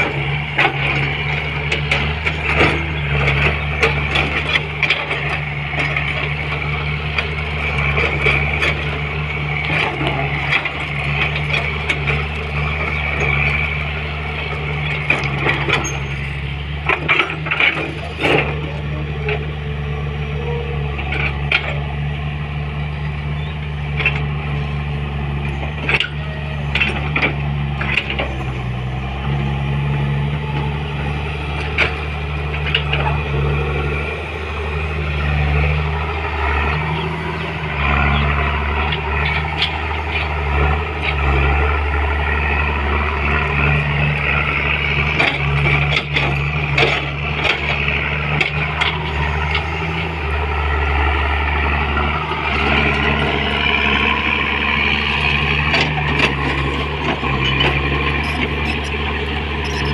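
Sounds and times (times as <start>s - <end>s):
excavator diesel engine running: 0.0s - 59.9s.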